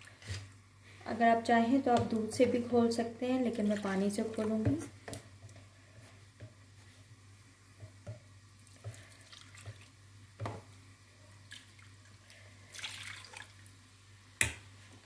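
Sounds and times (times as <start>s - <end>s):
wet mixing sounds: 0.0s - 7.2s, 7.8s - 13.8s
water splashing into bowl: 8.9s - 9.9s, 12.7s - 13.7s.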